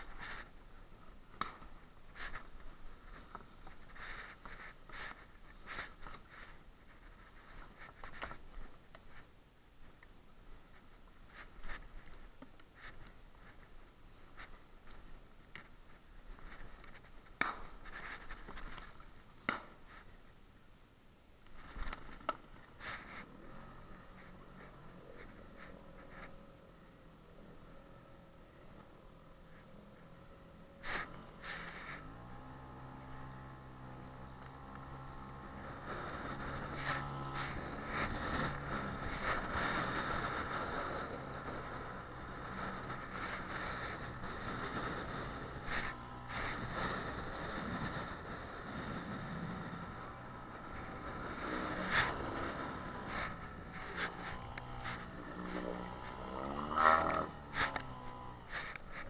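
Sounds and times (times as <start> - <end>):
outboard motor running: 30.2 - 59.0
gear handled in inflatable boat: 56.8 - 59.0.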